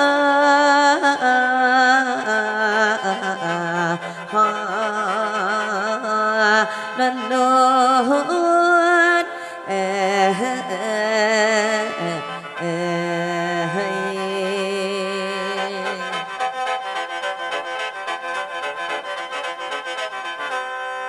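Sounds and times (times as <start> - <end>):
woman singing wordless vocalise: 0.0 - 16.5.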